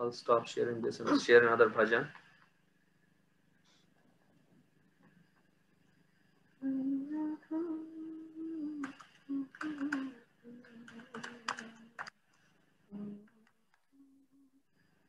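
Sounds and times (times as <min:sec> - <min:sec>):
woman humming softly: 0:06.6 - 0:12.0, 0:12.9 - 0:14.7.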